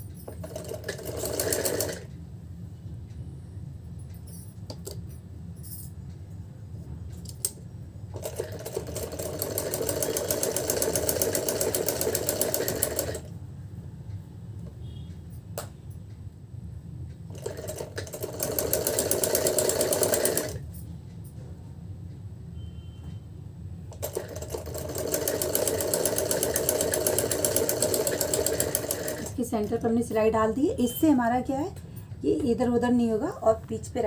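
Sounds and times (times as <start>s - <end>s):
steady low hum: 0.0s - 34.0s
sewing machine needle rattle: 0.2s - 2.1s, 8.1s - 13.3s, 17.3s - 20.6s, 23.9s - 29.9s.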